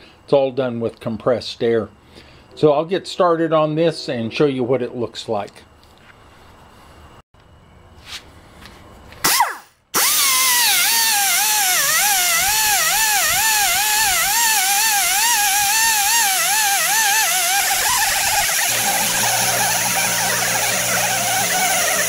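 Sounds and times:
die grinder high whine: 9.3s - 22.0s.

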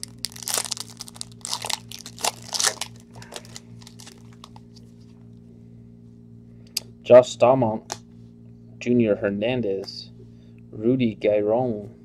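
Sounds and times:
foil wrapper tearing and crinkling: 0.0s - 4.6s.

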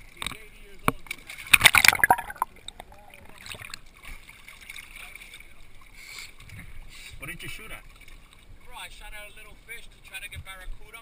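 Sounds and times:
quiet water movement: 0.0s - 11.0s
water splashing: 1.3s - 5.4s.

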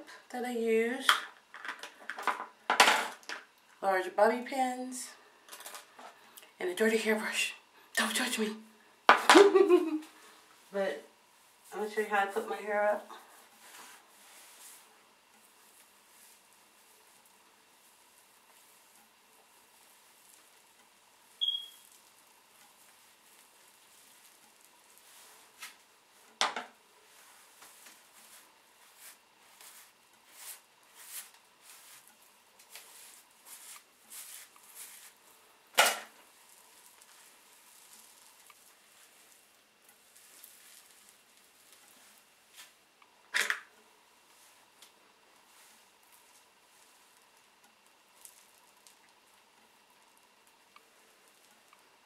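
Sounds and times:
rustling through hair: 9.4s - 42.9s, 44.2s - 49.5s.

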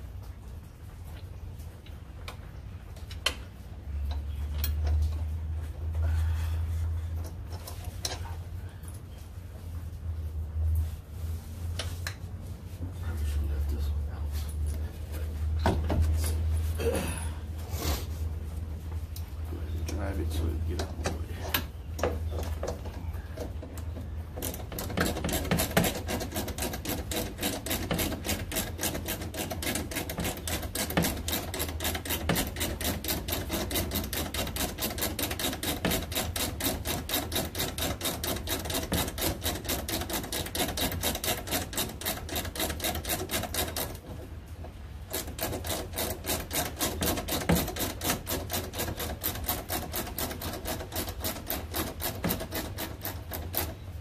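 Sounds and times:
ratchet wrench clicking: 24.4s - 44.0s, 45.1s - 53.8s.

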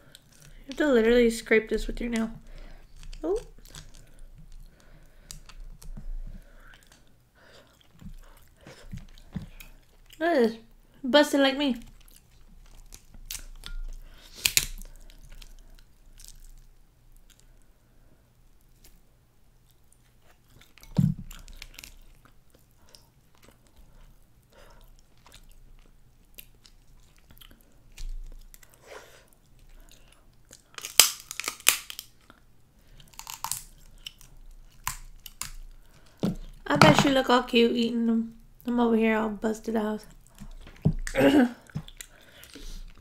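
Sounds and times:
crab shells cracking: 2.1s - 10.2s, 11.8s - 17.5s, 20.6s - 23.7s, 29.7s - 36.6s
chewing: 2.2s - 10.2s, 11.8s - 17.7s, 19.6s - 36.6s, 40.1s - 43.0s.

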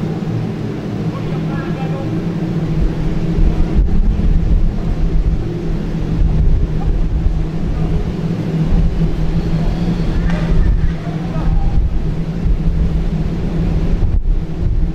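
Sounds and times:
steady low hum: 0.0s - 14.9s
wind buffeting microphone: 0.0s - 14.9s.

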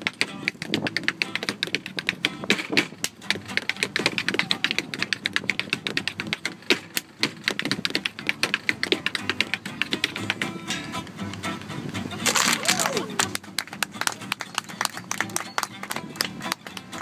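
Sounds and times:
tap shoes striking a board: 0.0s - 10.7s.

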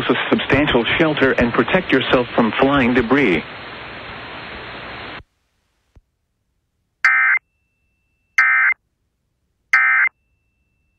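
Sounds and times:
radio hiss: 0.0s - 5.3s.

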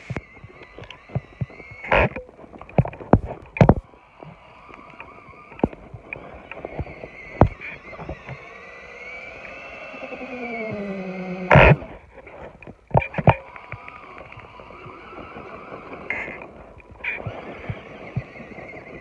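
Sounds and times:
electric motors whining: 0.0s - 19.0s.

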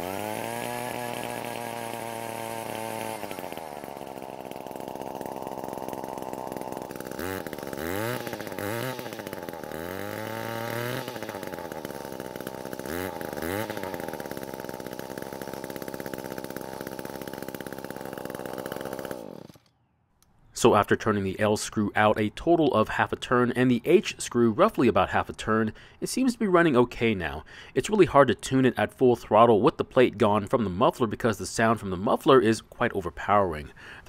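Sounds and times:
edger two-stroke engine revving: 0.0s - 19.7s.

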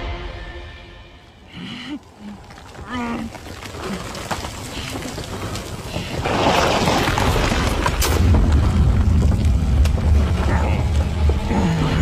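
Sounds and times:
deep rumble: 1.5s - 12.0s
dark noisy rush: 7.9s - 12.0s.

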